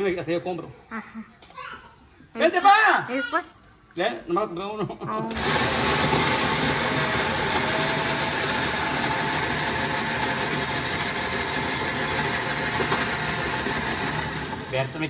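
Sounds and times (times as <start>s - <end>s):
motor running with harsh hiss: 5.3s - 14.7s.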